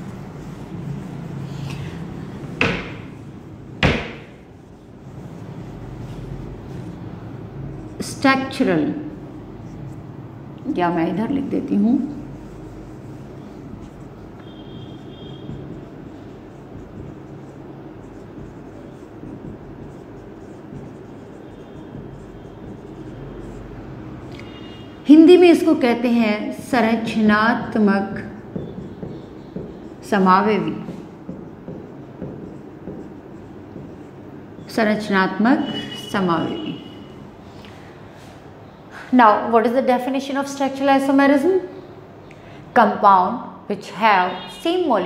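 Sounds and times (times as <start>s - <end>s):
eraser wiping a whiteboard: 0.0s - 10.2s, 11.1s - 25.8s, 26.5s - 34.8s
low background hum: 0.0s - 35.6s
sharp knocks: 2.6s - 3.2s, 3.8s - 4.5s, 28.3s - 34.1s.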